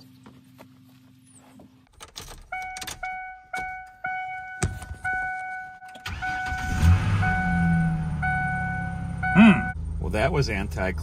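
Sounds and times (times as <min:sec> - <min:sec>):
truck engine cranking and running: 0:01.9 - 0:10.0
truck warning chime dinging: 0:02.1 - 0:10.0.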